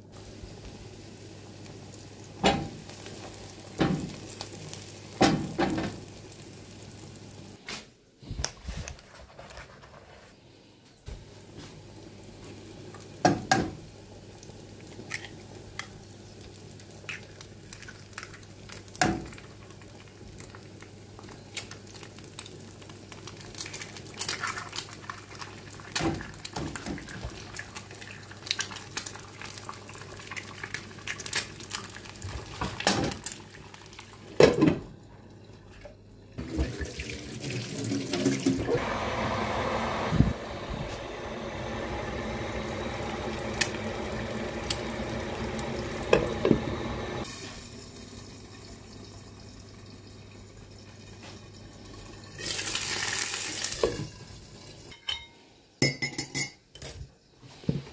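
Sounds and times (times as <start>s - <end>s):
electric kettle boiling: 0.0s - 7.6s, 36.4s - 54.9s
onions sizzling in a frying pan: 0.0s - 7.6s, 11.2s - 34.4s, 39.0s - 49.5s, 51.0s - 55.0s.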